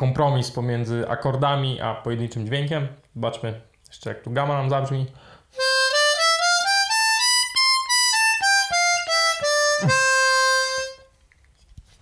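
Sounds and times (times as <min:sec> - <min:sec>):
harmonica playing a scale: 0:05.6 - 0:11.1.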